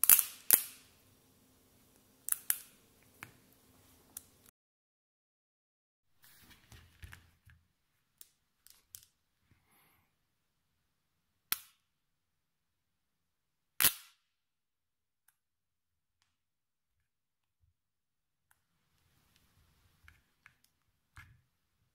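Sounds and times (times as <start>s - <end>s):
magnet balls clicking and rattling: 0.0s - 0.9s, 2.3s - 2.8s, 8.2s - 9.2s
magnets clacking together: 0.0s - 0.9s, 2.3s - 3.3s, 8.2s - 9.2s.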